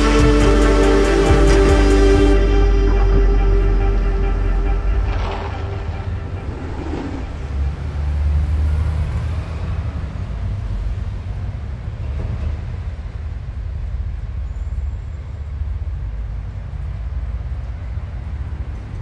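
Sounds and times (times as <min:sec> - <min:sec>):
steady low rumble: 0:00.3 - 0:08.3.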